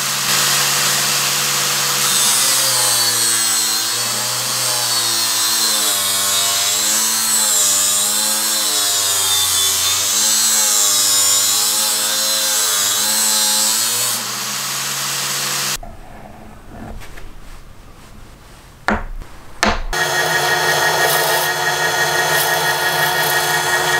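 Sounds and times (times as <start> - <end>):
faint rubbing: 15.8 - 20.0
disc sander sanding wood: 15.8 - 23.9.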